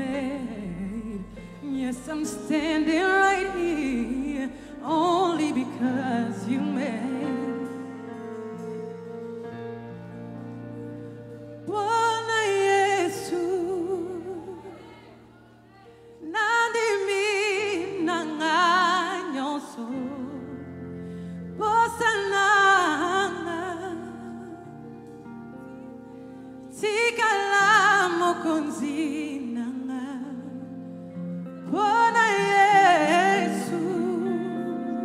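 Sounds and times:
woman singing with vibrato: 0:00.0 - 0:09.5, 0:11.0 - 0:20.8, 0:21.6 - 0:25.0, 0:26.7 - 0:35.0
held keyboard chords: 0:00.0 - 0:18.9.

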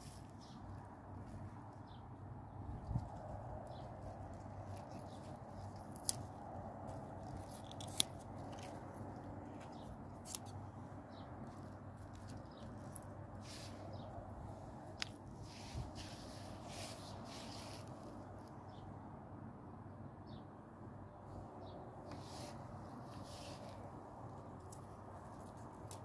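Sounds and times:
pea pods snapping: 0:03.0 - 0:10.6, 0:14.9 - 0:15.2.

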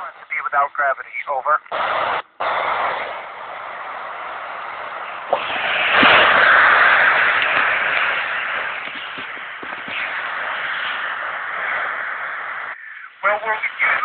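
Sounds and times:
radio static hiss: 0:00.0 - 0:14.0
radio click: 0:07.2 - 0:10.2.

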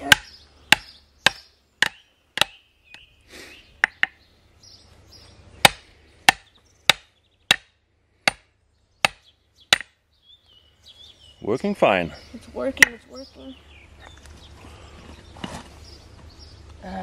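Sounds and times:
hammer striking steel wedge: 0:05.6 - 0:10.0.

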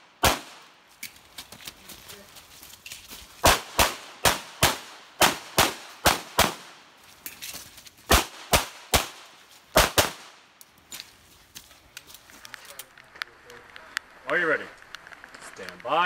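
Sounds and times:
pistol shots: 0:00.2 - 0:00.7, 0:03.4 - 0:06.8, 0:08.1 - 0:10.4.

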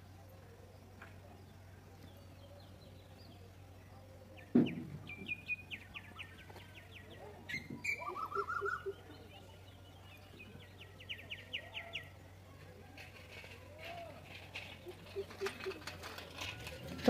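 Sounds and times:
birds chirping: 0:00.0 - 0:17.0
dull thump: 0:04.5 - 0:05.3.

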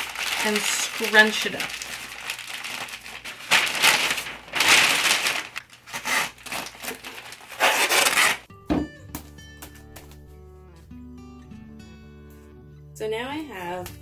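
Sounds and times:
newspaper scrunching: 0:00.0 - 0:08.5
masking tape pulled off roll: 0:01.8 - 0:08.5.

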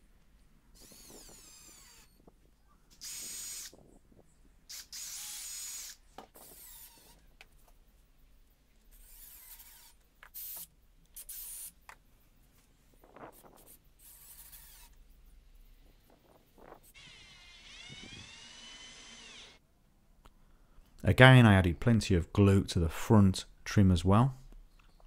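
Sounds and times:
cordless drill driving screws: 0:00.8 - 0:02.2, 0:02.9 - 0:03.8, 0:04.7 - 0:07.2, 0:17.0 - 0:19.6.

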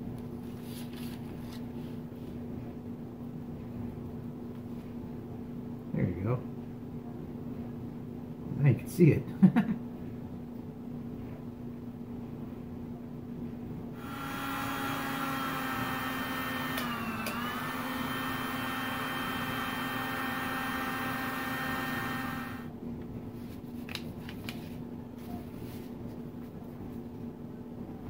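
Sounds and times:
small electric motor whining: 0:14.0 - 0:22.7.

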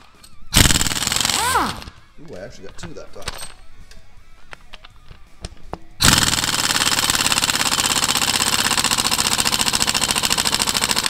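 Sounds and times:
pneumatic impact wrench hammering: 0:00.6 - 0:02.0, 0:06.0 - 0:11.0.

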